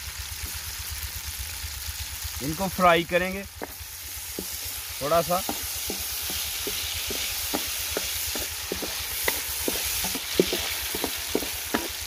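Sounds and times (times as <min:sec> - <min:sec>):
nuts sizzling in fat: 0:00.0 - 0:12.0
wooden spatula stirring: 0:03.6 - 0:12.0.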